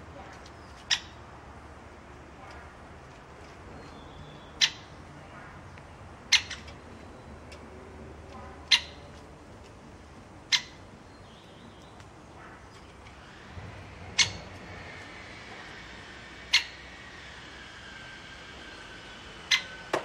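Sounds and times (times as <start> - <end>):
woodpecker sharp calls: 0.4 - 1.2, 3.8 - 5.0, 6.2 - 7.6, 8.6 - 9.1, 10.4 - 13.5, 14.1 - 17.4, 18.7 - 19.9.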